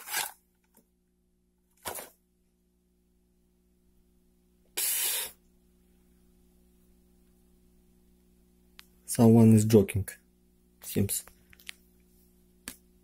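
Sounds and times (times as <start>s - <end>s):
short hiss of air: 4.8s - 5.4s.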